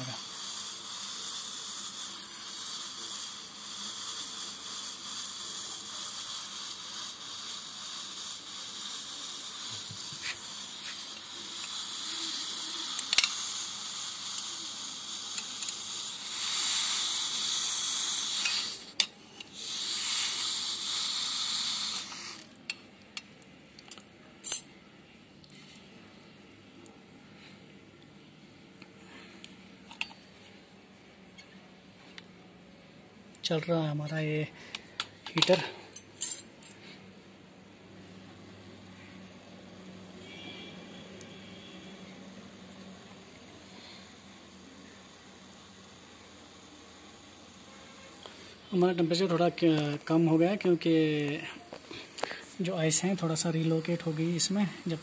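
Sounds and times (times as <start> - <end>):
heating element hissing in water: 0.0 - 22.7, 40.2 - 55.0.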